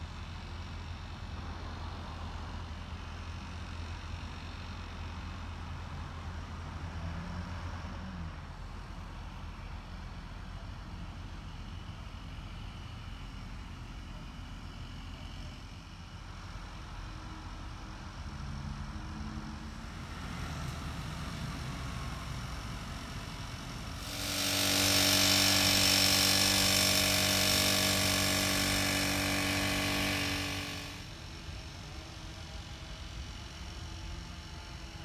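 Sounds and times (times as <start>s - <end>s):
engine running: 18.7s - 32.1s.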